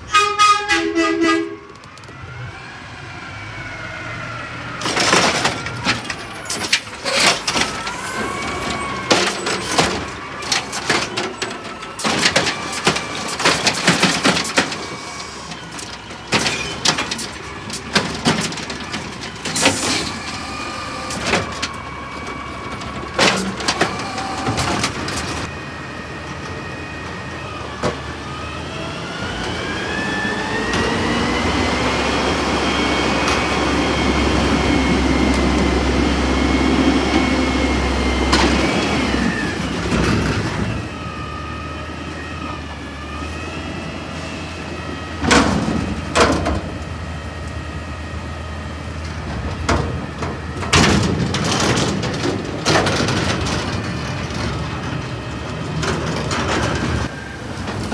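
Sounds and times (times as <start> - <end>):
garbage truck engine: 0.0 - 57.9
hydraulic whine: 1.5 - 57.9
trash cart banging against hopper: 4.8 - 25.5, 45.1 - 46.8, 49.1 - 57.9.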